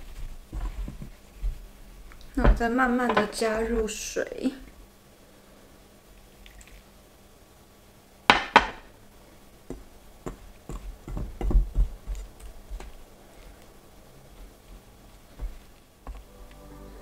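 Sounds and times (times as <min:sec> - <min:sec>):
dough thumping in a bowl: 0:09.7 - 0:13.0.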